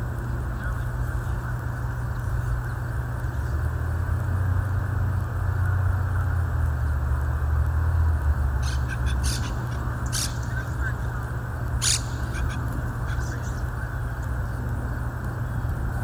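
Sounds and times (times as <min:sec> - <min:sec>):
steady low rumble: 0:00.0 - 0:16.0
parakeets squawking: 0:08.6 - 0:14.6.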